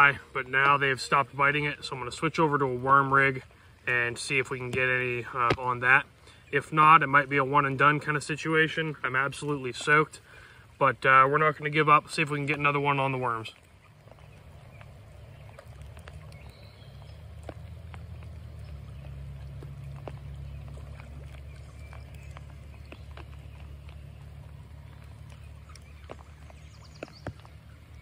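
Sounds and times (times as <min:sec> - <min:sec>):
rain rumble on creek: 0:00.0 - 0:28.0
raindrop ticks: 0:13.5 - 0:28.0.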